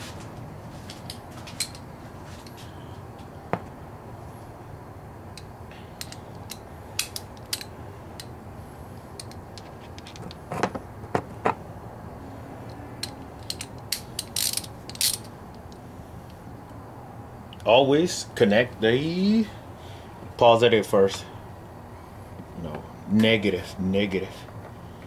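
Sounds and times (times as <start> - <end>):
steady low hum: 0.0 - 25.0
metallic clicks of hand tools: 5.4 - 8.3, 12.7 - 15.7.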